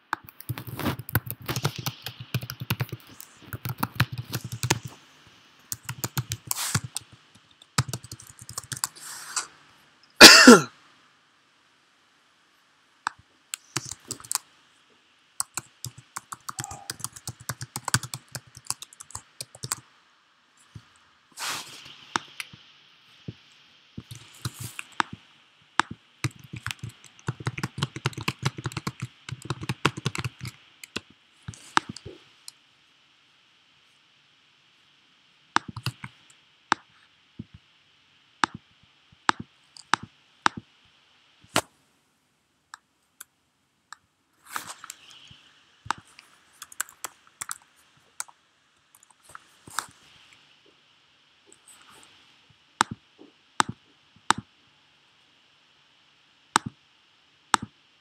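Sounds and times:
keyboard typing clicks: 0.1 - 4.9, 5.7 - 9.0, 13.1 - 14.4, 15.4 - 19.8, 25.8 - 32.1, 46.6 - 48.3.

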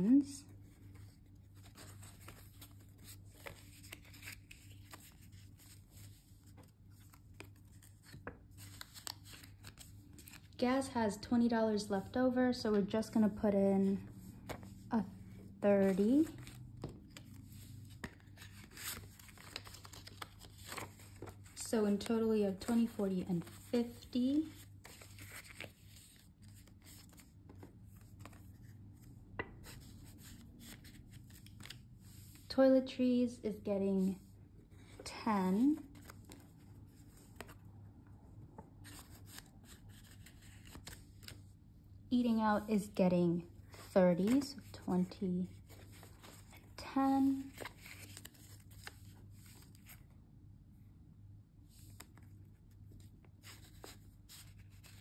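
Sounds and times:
paper banknotes rustling: 0.6 - 10.6, 15.8 - 32.3, 35.6 - 37.6, 38.8 - 41.4, 43.7 - 50.1, 51.8 - 55.0.

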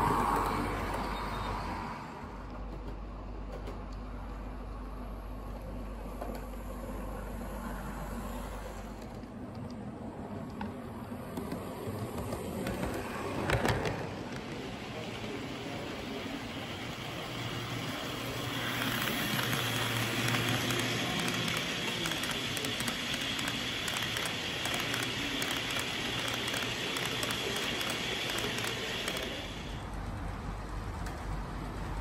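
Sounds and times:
model train wheels rattling on rails: 11.3 - 29.9.

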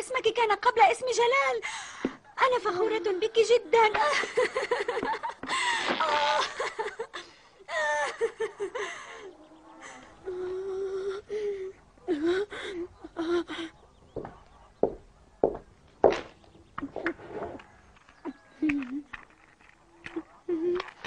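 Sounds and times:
girl laughing: 4.0 - 9.2.

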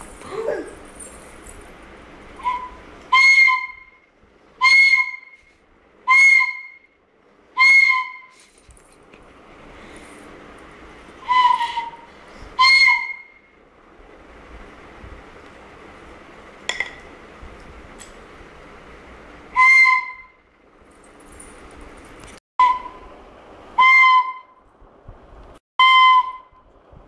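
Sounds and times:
toy flute toots: 2.4 - 4.0, 4.6 - 5.4, 6.0 - 6.9, 11.2 - 13.4, 19.5 - 20.4, 22.6 - 23.1, 25.8 - 26.6.

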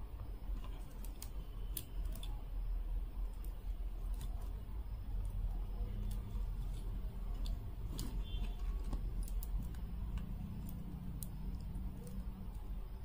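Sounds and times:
steady low hum: 0.0 - 13.0
beads clicking together: 9.0 - 12.8.

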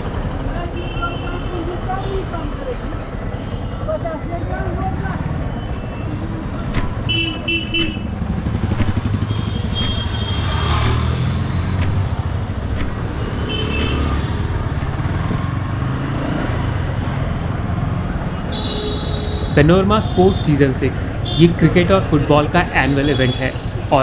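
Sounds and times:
vehicle horns beeping: 5.5 - 8.3, 8.9 - 12.1, 13.0 - 14.5, 18.4 - 23.7
motorcycle engine running: 6.1 - 17.8.

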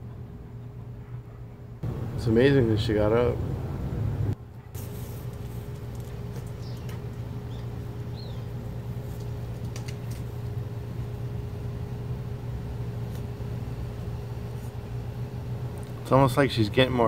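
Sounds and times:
low machine hum: 0.0 - 17.0
faint bird chirps: 6.5 - 8.6.

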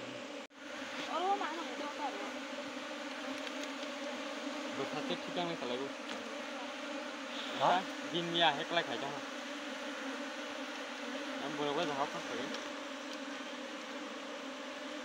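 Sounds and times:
bees buzzing: 0.0 - 15.0
person speaking: 11.4 - 12.6.

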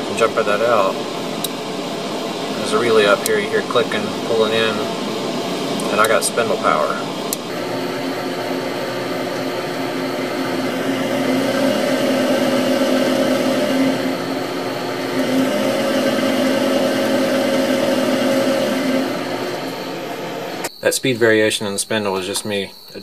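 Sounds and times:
mill spindle motor humming: 0.0 - 20.8.

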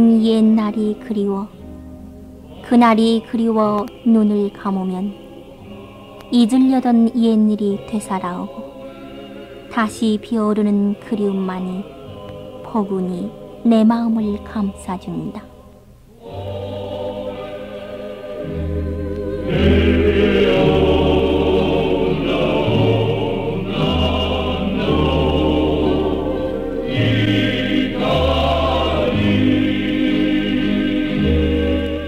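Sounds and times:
choir singing sustained notes: 0.0 - 32.0.

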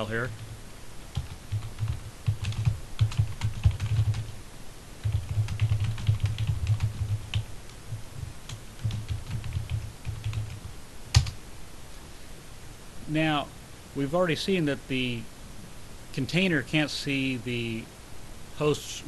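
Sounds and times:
typing on a keyboard: 1.1 - 4.3, 5.0 - 7.5, 8.5 - 11.4.

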